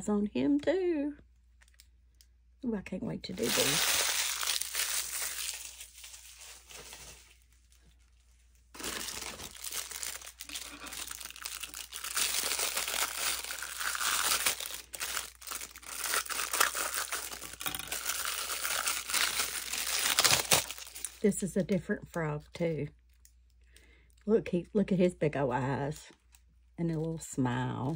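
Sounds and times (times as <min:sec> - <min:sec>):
plastic wrapping crinkling: 0:03.3 - 0:21.7
scissors cutting plastic bag: 0:08.8 - 0:21.2.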